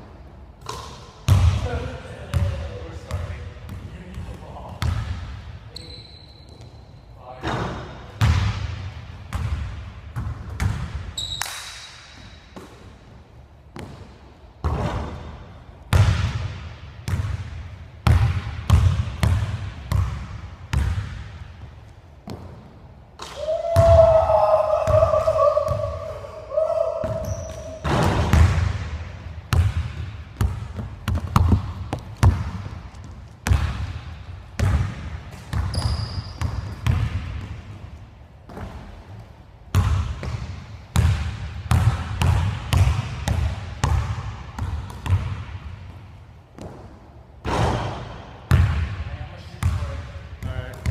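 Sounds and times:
sneaker squeaks: 5.7 - 8.0, 11.1 - 12.7, 27.0 - 28.1, 35.3 - 36.9
basketball bouncing on wooden floor: 15.9 - 21.3, 27.0 - 28.9, 29.5 - 37.9, 39.7 - 46.0, 48.5 - 48.9.

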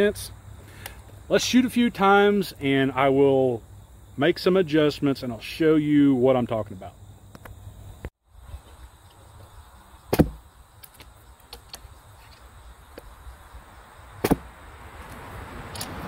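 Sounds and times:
arrow striking foam target: 10.1 - 10.4, 14.2 - 14.5.

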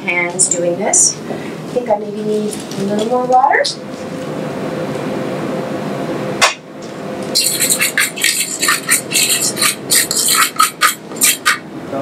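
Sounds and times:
fork scraping metal bowl: 7.4 - 11.6.

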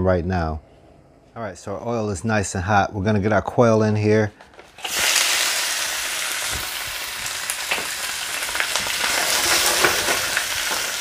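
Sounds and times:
meat sizzling in hot oil: 4.8 - 11.0
oil popping and crackling: 4.8 - 11.0.

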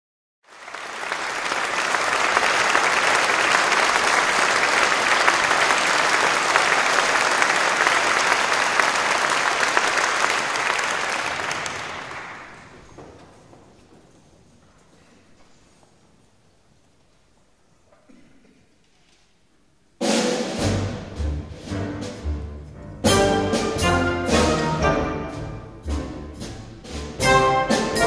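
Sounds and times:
audience applauding: 0.4 - 14.2.

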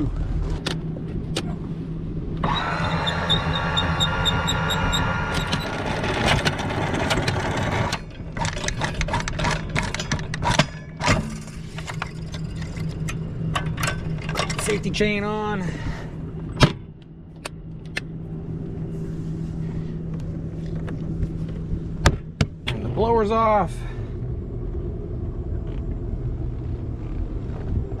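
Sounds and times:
boat engines idling: 0.0 - 10.0
rough mechanical noise with ticking: 2.3 - 18.8.

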